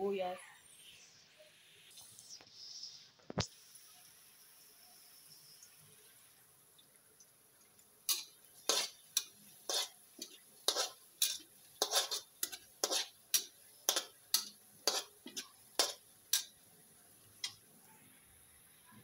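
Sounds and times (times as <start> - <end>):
metal spatula scraping a wok: 8.1 - 16.6.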